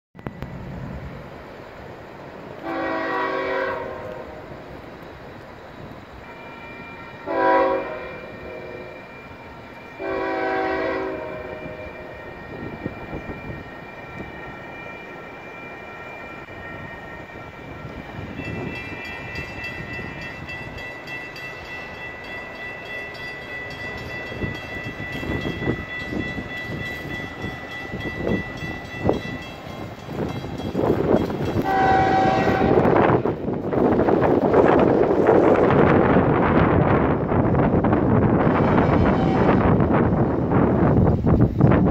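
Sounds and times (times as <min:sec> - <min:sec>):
rush of approaching train: 0:00.2 - 0:41.9
locomotive air horn blasts: 0:02.6 - 0:04.4, 0:06.2 - 0:09.1, 0:10.0 - 0:12.1, 0:31.6 - 0:33.2, 0:38.4 - 0:39.9
high ringing tone: 0:06.2 - 0:07.3, 0:08.1 - 0:10.4, 0:11.4 - 0:32.5.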